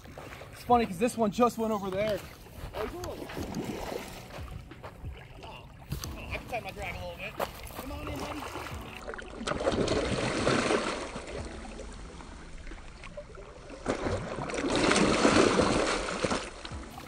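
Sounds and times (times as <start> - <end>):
fish thrashing in water: 3.2 - 4.3, 7.6 - 11.9, 12.8 - 17.0.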